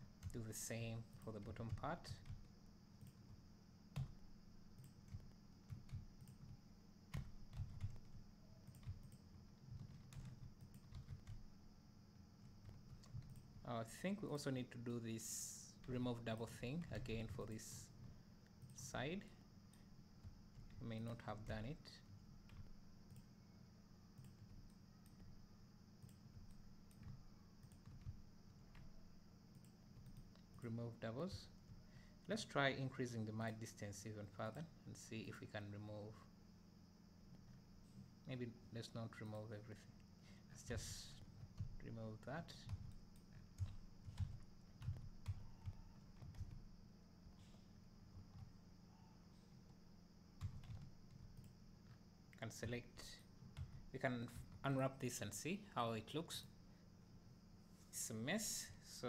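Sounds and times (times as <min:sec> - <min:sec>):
low steady hum: 0:00.0 - 0:59.0
computer mouse clicks: 0:26.0 - 0:28.2.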